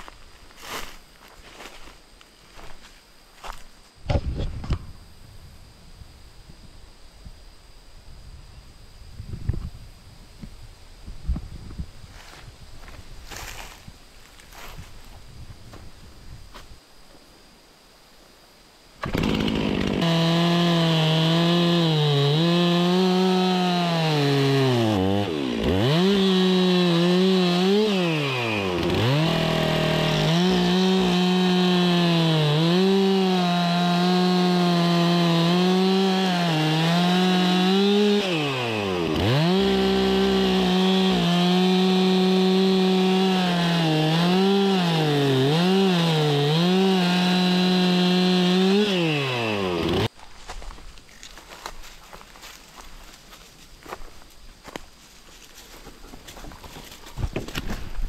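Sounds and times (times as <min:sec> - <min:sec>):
chainsaw cutting log: 0:19.0 - 0:50.1.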